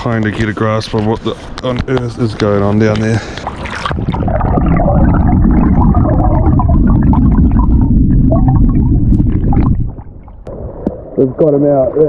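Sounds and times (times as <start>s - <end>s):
water bubbling and gurgling: 2.7s - 12.0s
underwater river rumble: 2.8s - 12.0s.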